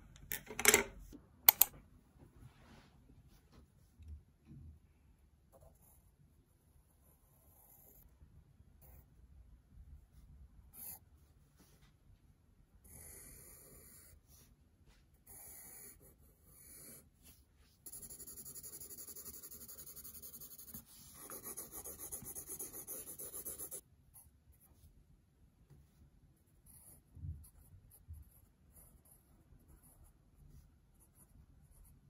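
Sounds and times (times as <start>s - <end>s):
pencil scratching on paper: 15.3s - 23.8s, 26.5s - 32.0s.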